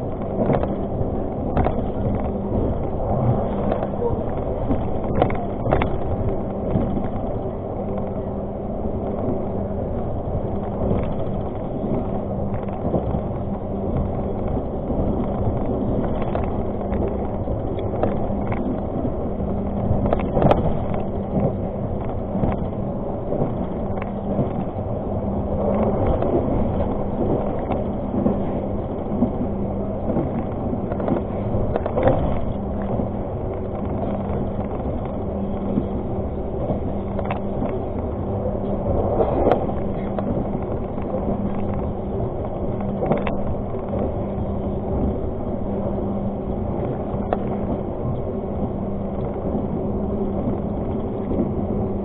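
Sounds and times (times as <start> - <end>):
train rumbling along track: 0.0 - 52.0
clicks and knocks of train: 0.1 - 2.7, 10.6 - 19.2, 25.6 - 35.9, 36.6 - 44.3.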